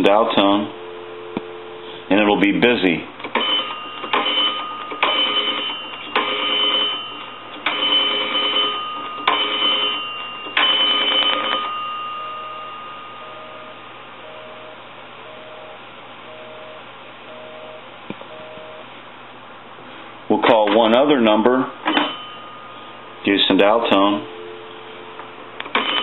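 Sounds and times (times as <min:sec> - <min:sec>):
busy signal beeps: 0:12.2 - 0:18.9, 0:24.2 - 0:25.2.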